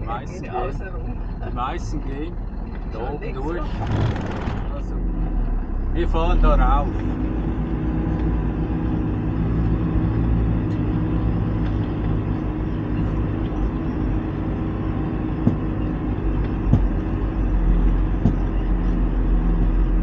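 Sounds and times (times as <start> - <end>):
diesel truck engine under load: 0.0 - 20.0
sharp knocks over ruts: 15.4 - 15.8, 16.4 - 17.1, 18.1 - 18.6.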